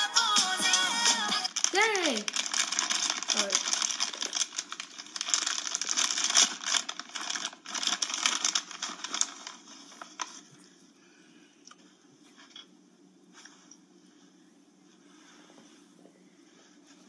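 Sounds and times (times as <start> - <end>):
plastic bag crinkling: 0.1 - 10.6.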